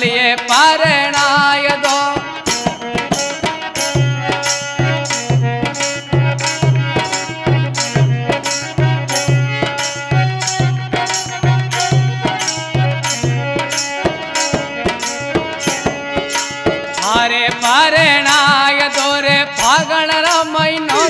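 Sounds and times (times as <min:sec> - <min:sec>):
jingling cymbals: 0:00.5 - 0:18.6, 0:19.2 - 0:21.0
melody instrument holding notes: 0:20.8 - 0:21.0.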